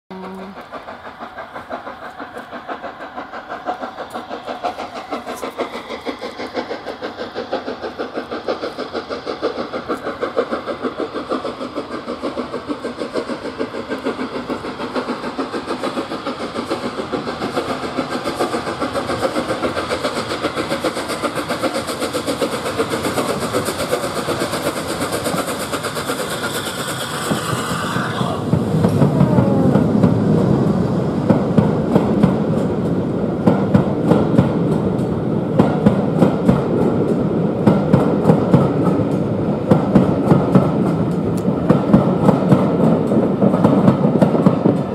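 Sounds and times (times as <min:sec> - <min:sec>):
deep train rumble: 0:00.1 - 0:44.9
steam locomotive chuffing: 0:00.1 - 0:44.9.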